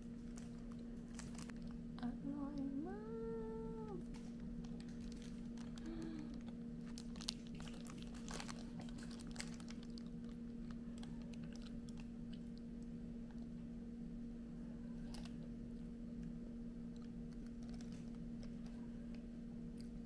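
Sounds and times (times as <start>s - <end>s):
bread being torn and chewed: 0.0s - 1.9s, 4.1s - 13.6s, 14.9s - 20.0s
steady low hum: 0.0s - 20.0s
wrapper crackling: 0.2s - 1.7s, 4.1s - 12.1s.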